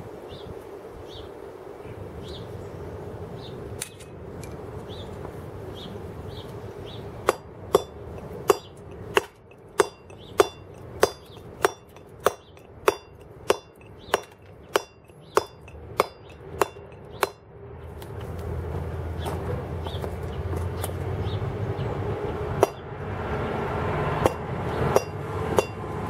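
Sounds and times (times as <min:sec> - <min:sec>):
mallet striking chisel on stone: 0:07.2 - 0:17.4, 0:22.6 - 0:22.8, 0:24.2 - 0:25.8.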